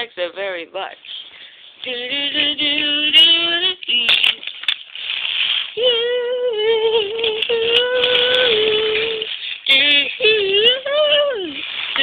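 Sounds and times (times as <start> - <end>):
child singing: 5.8 - 12.0.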